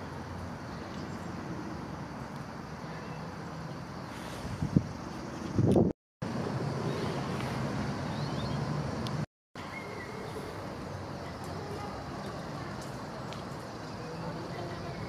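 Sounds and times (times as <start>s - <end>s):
distant traffic rumble: 0.0s - 15.0s
faint bird chirps: 9.6s - 11.7s.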